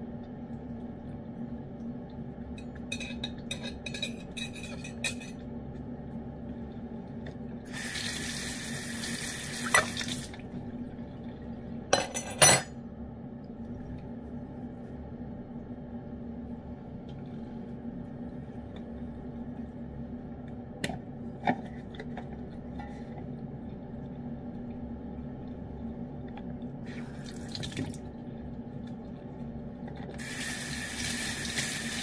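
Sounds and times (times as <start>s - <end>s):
steady low hum: 0.0s - 32.0s
tap water running: 7.6s - 10.6s, 26.8s - 28.1s, 30.2s - 32.0s.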